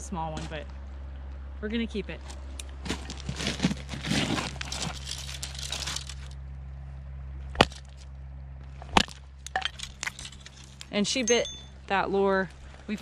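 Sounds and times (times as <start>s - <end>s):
rustle of fish on gravel: 2.8s - 6.4s.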